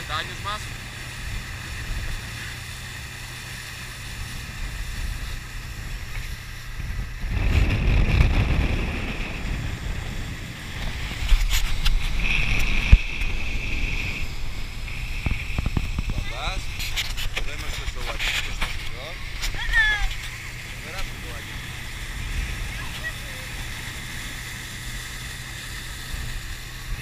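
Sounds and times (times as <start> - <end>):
rushing water and spray: 0.0 - 27.0
speedboat engine rumble: 0.0 - 27.0
steady high whine: 0.0 - 27.0
wind on microphone: 0.0 - 27.0.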